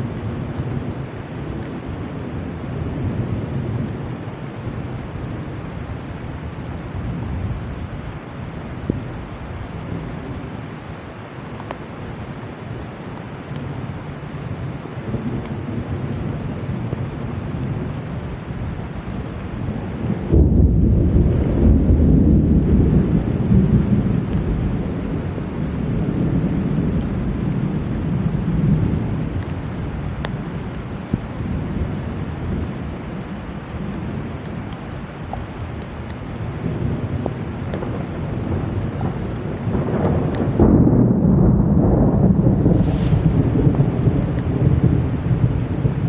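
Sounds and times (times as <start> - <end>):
heavy rain falling: 0.0 - 46.0
thunder rumbling: 13.6 - 46.0.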